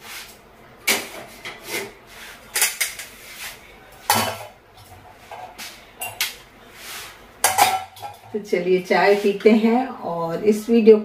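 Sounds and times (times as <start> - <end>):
utensils and cups clattering: 4.1 - 6.3, 7.4 - 8.4.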